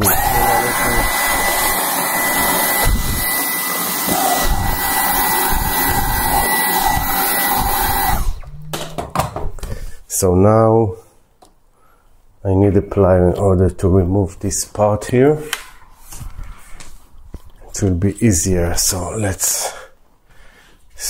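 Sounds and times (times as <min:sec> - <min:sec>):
handheld vacuum cleaner whining: 0:00.0 - 0:08.5.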